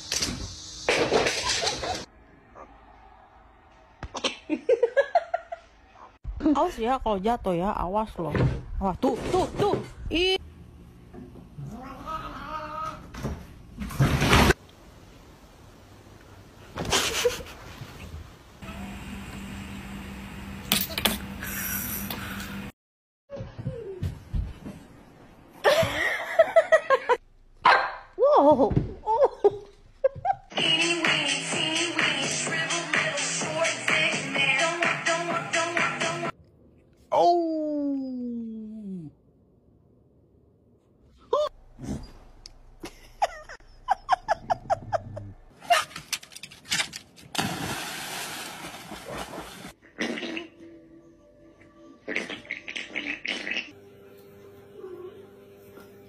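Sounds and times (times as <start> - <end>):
puppy barking: 27.6 - 28.1
cat splashing into water: 47.4 - 49.7.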